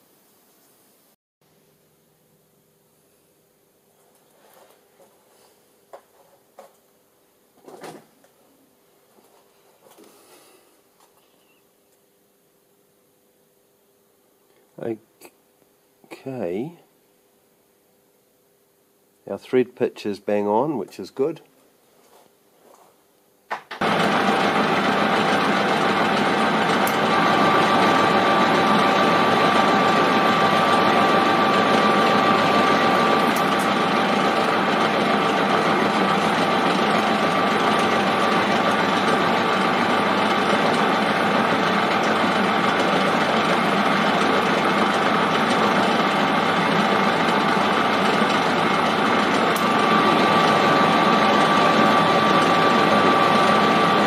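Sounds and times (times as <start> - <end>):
lathe tool cutting thread: 23.8 - 54.0
metal lathe running: 23.8 - 54.0.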